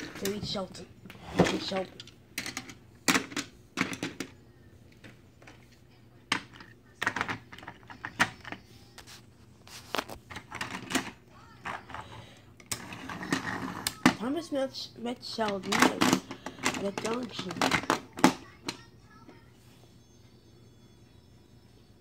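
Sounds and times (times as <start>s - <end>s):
plastic toy trains clacking: 15.4s - 18.9s.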